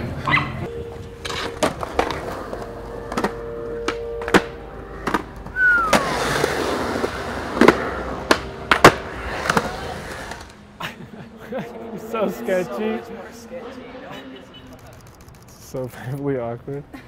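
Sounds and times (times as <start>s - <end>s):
skateboard wheels rolling: 0.0s - 11.3s
skateboards clacking on ground: 0.9s - 10.6s
short falling squeal: 5.5s - 6.5s.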